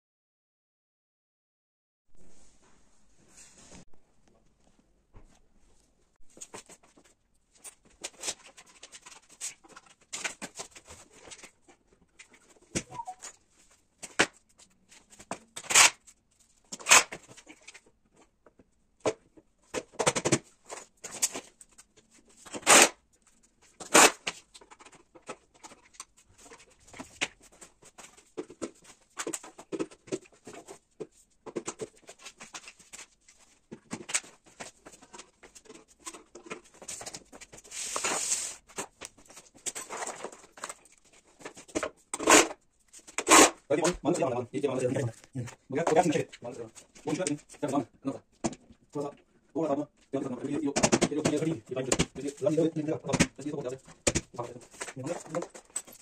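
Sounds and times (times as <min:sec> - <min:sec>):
cardboard rustling: 0:23.3 - 0:42.1.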